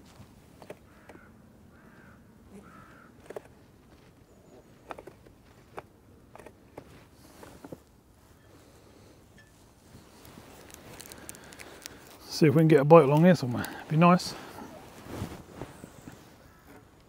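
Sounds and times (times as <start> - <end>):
crow cawing: 0.9 - 3.2, 16.4 - 16.8.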